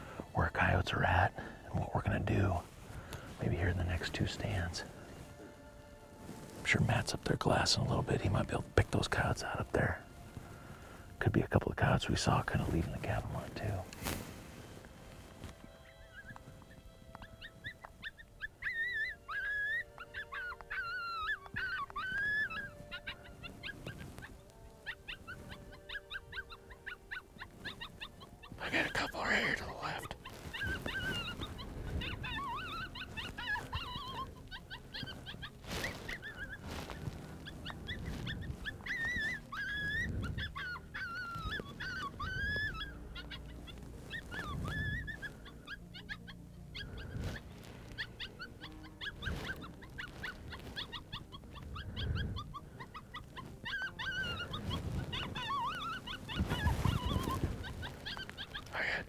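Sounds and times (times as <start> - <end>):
coyotes howling and yipping: 0.0 - 13.9, 15.2 - 59.0.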